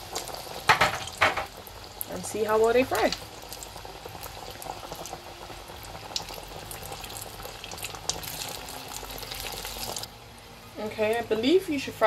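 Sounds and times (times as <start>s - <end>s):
oil popping: 0.0s - 2.1s, 2.9s - 10.1s
deep-frying bubbling sizzle: 0.0s - 12.0s.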